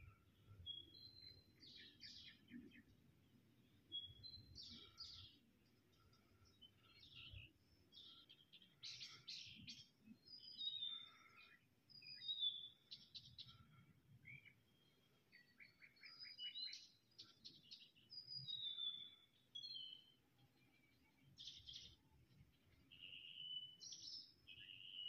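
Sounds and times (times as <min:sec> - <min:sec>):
songbird singing: 0:00.0 - 0:25.0.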